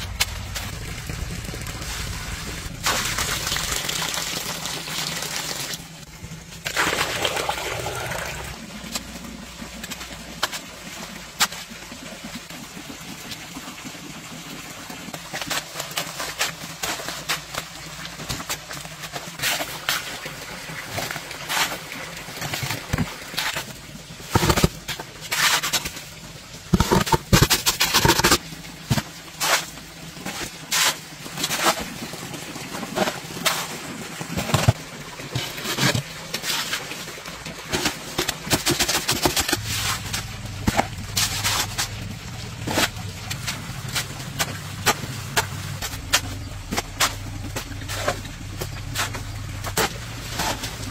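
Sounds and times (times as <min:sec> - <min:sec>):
low motor hum: 0:00.0 - 0:03.6, 0:39.6 - 0:50.9
shovel scraping wet mortar: 0:21.4 - 0:26.0, 0:26.7 - 0:32.0, 0:35.4 - 0:37.0, 0:37.7 - 0:50.9.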